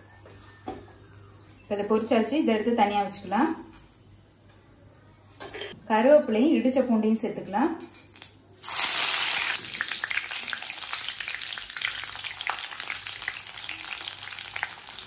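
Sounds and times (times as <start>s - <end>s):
leaves and garlic sizzling in oil: 8.6s - 15.0s.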